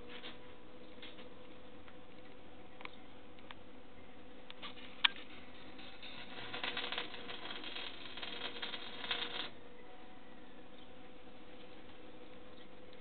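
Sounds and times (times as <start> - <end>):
arc welder crackling: 4.5 - 9.6.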